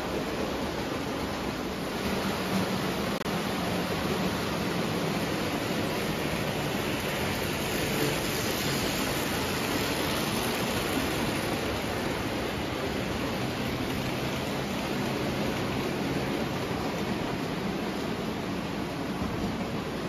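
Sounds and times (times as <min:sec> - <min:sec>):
toy train wheels on rails: 0:03.4 - 0:18.2.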